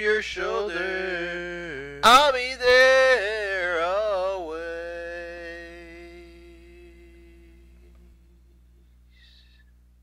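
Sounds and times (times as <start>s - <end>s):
man singing: 0.0s - 7.9s.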